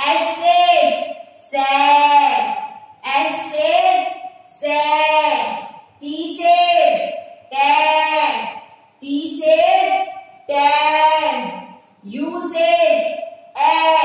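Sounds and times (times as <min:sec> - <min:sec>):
teacher and children chanting: 0:09.3 - 0:14.0.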